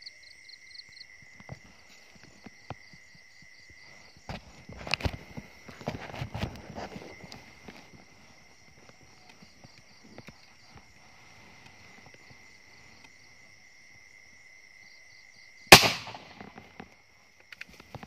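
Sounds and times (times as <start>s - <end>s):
night insects trilling: 0.0s - 18.0s
loud gunshot: 15.7s - 16.4s.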